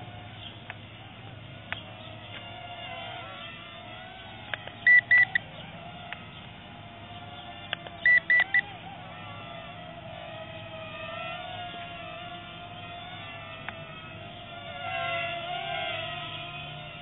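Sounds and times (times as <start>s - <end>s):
faint steady whine: 0.0s - 17.0s.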